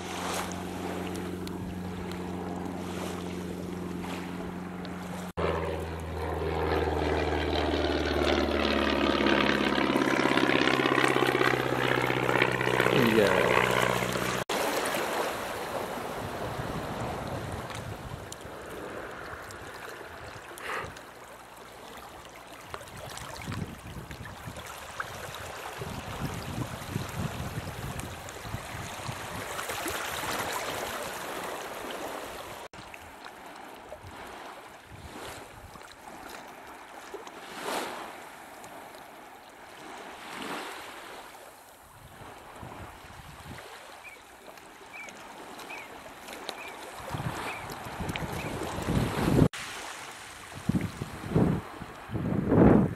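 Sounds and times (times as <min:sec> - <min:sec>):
small waves lapping on shore: 0:00.0 - 0:52.2
wind rumbling on microphone: 0:15.5 - 0:21.1, 0:22.6 - 0:32.7, 0:34.0 - 0:35.8, 0:41.8 - 0:43.7, 0:46.6 - 0:49.6, 0:50.4 - 0:52.9.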